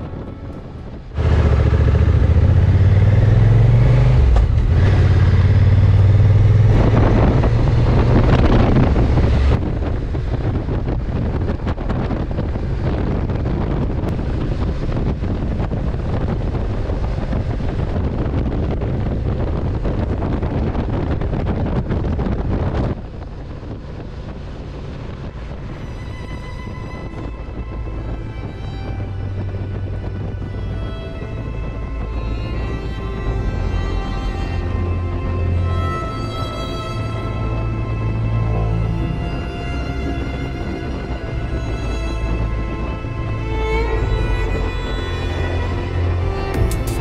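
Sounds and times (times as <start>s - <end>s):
wind and road noise: 0.0s - 47.0s
motorcycle engine running: 1.1s - 11.4s.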